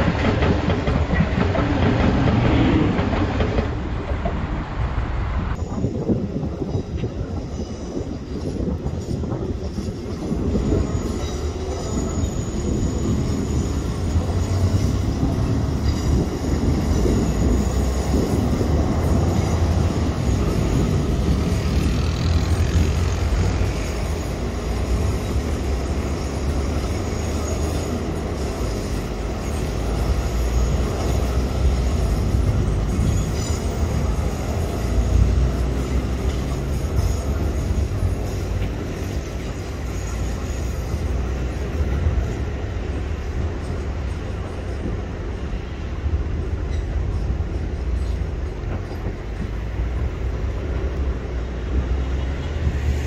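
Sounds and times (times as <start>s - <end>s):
train rolling with low rumble: 0.0s - 53.0s
high wheel squeal: 7.4s - 45.1s.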